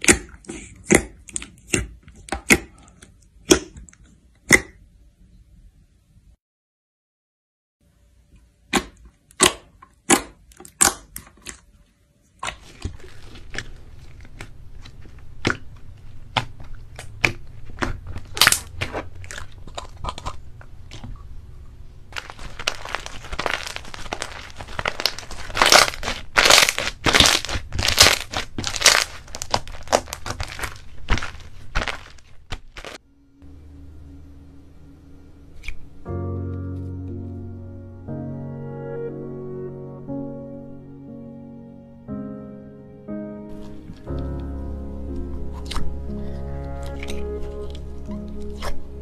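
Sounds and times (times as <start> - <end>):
slime popping and crackling: 0.0 - 4.8, 8.7 - 11.6, 12.4 - 21.4, 22.1 - 33.0, 43.5 - 49.0.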